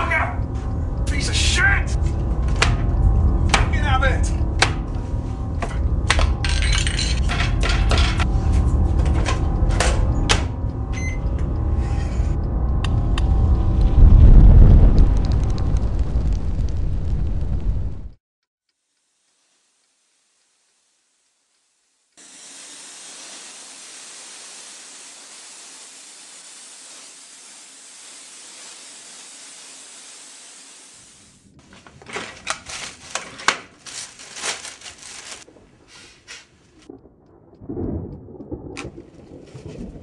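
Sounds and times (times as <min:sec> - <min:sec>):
low rumble: 0:00.0 - 0:18.2, 0:36.6 - 0:40.0
steady hiss: 0:18.7 - 0:31.5.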